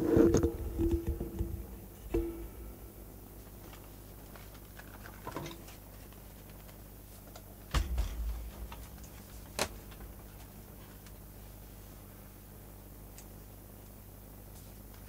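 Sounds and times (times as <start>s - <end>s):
sharp knock: 7.7s - 10.2s
heavy thump of machine set down: 7.7s - 10.5s.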